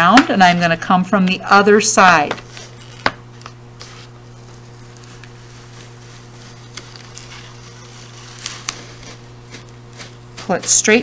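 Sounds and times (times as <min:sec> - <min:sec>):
steady low hum: 0:00.0 - 0:11.0
tape peeling off paper: 0:02.5 - 0:10.2.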